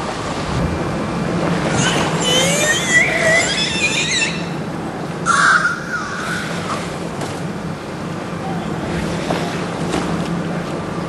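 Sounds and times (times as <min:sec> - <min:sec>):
killer whale whistles and calls: 0:01.6 - 0:07.0.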